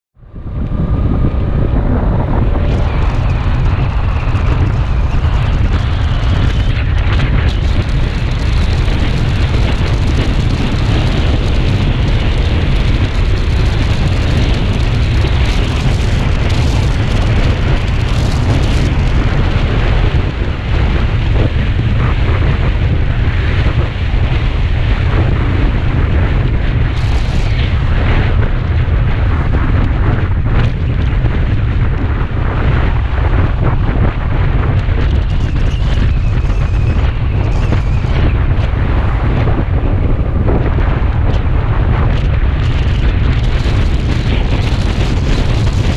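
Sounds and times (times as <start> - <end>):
motorcycle engine: 0.2 - 29.4
wind buffeting microphone: 0.2 - 45.9.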